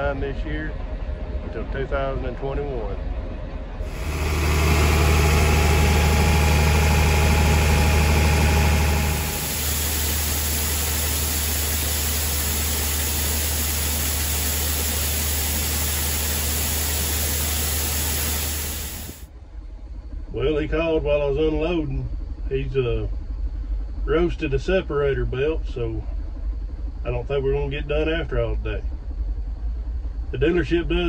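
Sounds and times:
grain auger machine hum: 3.8s - 19.2s.

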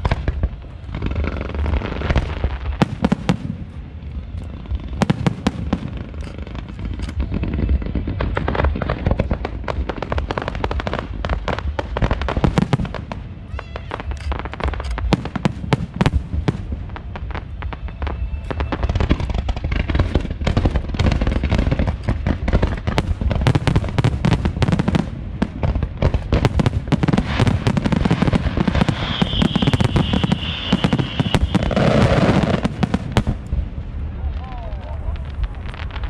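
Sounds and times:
deep rumble: 0.0s - 29.4s
fireworks bangs: 0.0s - 36.0s
firework whistle: 13.3s - 16.1s, 17.1s - 19.6s, 27.3s - 33.0s.

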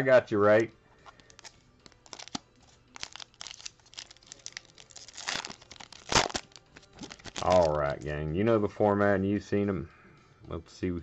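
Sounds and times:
foil wrapper tearing and crinkling: 1.2s - 7.8s.

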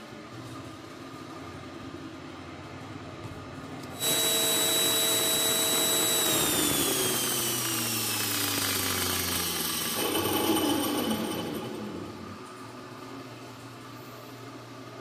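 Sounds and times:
saw blade whining: 4.0s - 12.2s.

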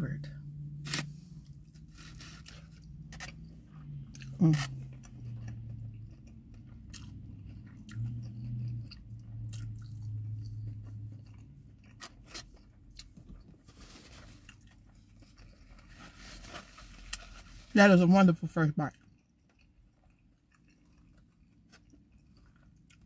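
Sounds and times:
crisp crunches: 1.7s - 3.5s
wet chewing: 1.8s - 13.5s, 18.9s - 23.0s.

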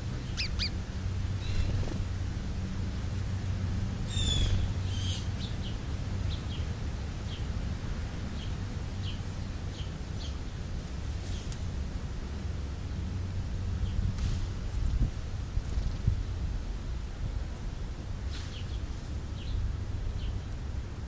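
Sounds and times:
sparrows chirping: 0.0s - 2.0s, 4.0s - 7.6s, 8.3s - 10.6s, 18.5s - 20.6s
steady low hum: 0.0s - 21.0s.

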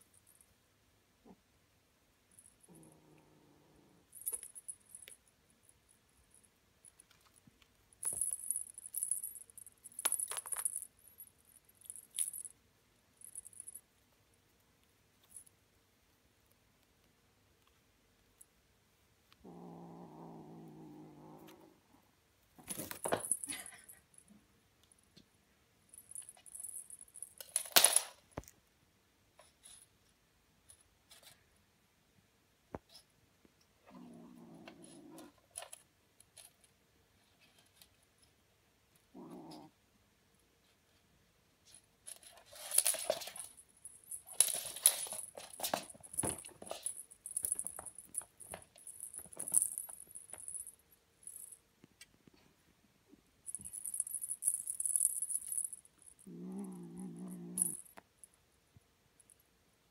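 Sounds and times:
small jingle bell jingling: 4.1s - 7.2s, 8.0s - 12.6s, 13.2s - 13.8s, 22.6s - 24.3s, 25.9s - 28.1s, 42.1s - 51.6s, 53.5s - 58.0s.

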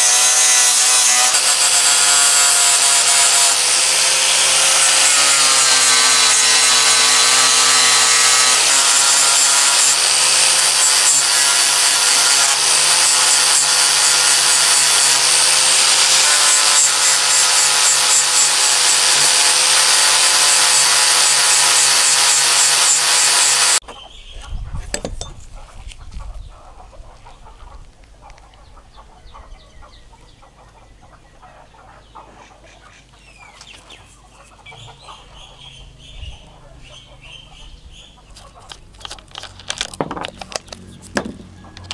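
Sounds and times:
angle grinder grinding steel: 0.0s - 23.8s
handling sounds: 38.3s - 41.9s.

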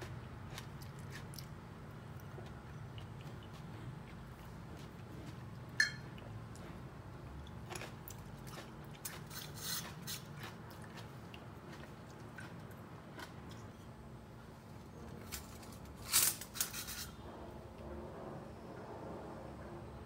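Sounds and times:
metallic clink: 5.8s - 6.0s
skewers scraping and rustling: 14.8s - 17.6s.

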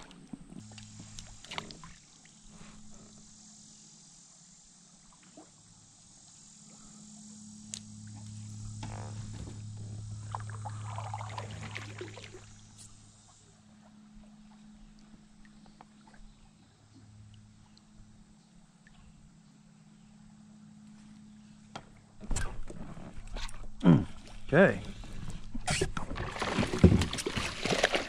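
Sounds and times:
steady low hum: 0.0s - 27.6s
creek water trickling: 0.0s - 28.0s.

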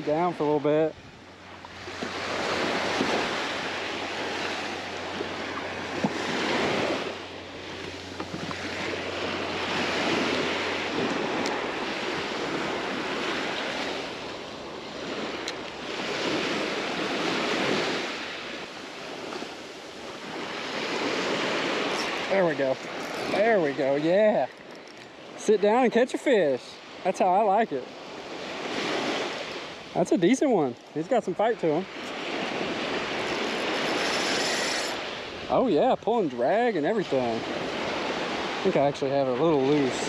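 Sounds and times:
small surf washing onto beach: 1.7s - 14.2s, 28.1s - 40.0s.

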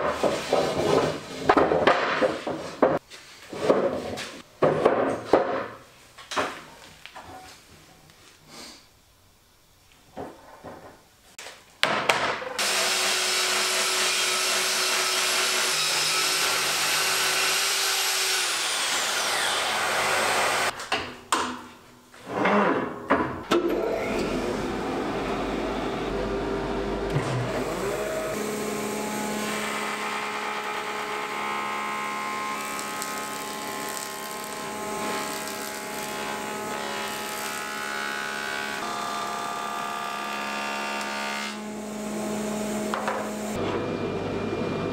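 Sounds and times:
wooden slabs knocking and sliding: 0.0s - 7.3s
dust extraction running: 12.6s - 20.7s, 23.8s - 44.9s
track saw cutting: 12.6s - 20.7s, 23.8s - 43.6s
low machine hum: 23.8s - 28.9s.

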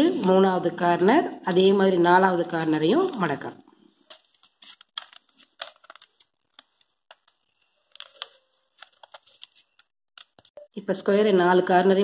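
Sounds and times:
paper folding rustles: 1.5s - 10.5s.

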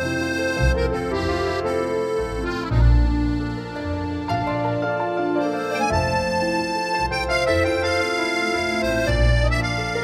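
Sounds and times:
keyboard chords: 0.0s - 10.0s
low bass: 0.0s - 10.0s.

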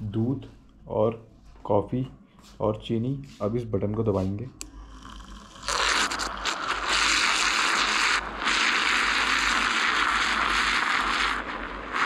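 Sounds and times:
small motor whirring: 5.0s - 12.0s.

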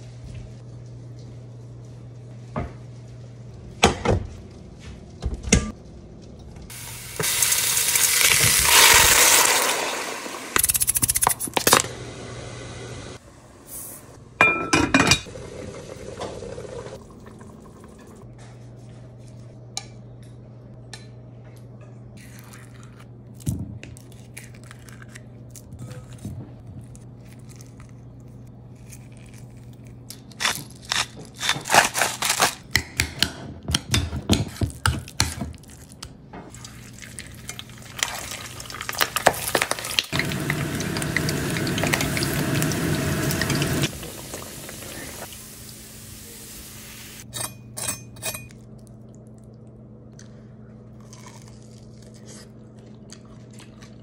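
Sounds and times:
meat sizzling in oil: 6.7s - 10.6s, 38.0s - 47.2s
utensils clinking on glass bowl: 47.3s - 48.6s.

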